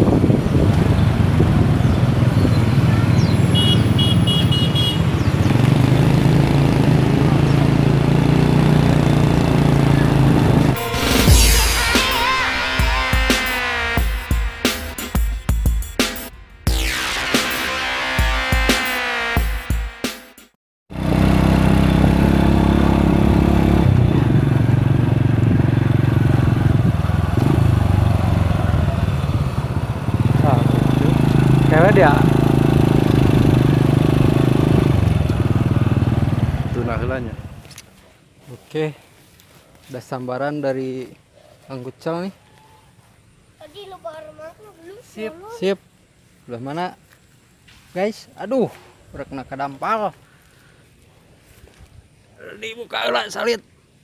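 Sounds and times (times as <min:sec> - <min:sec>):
motorcycle engine running: 0:00.0 - 0:11.4, 0:20.9 - 0:38.0.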